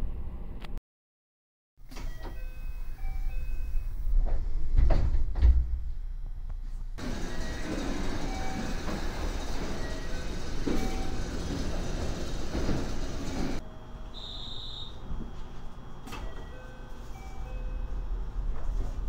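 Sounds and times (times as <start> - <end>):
chime-like tones: 2.1 - 4.0
train doors sliding closed: 7.0 - 13.6, 16.0 - 16.6
train running noise: 7.0 - 13.6
high beep: 14.2 - 15.0.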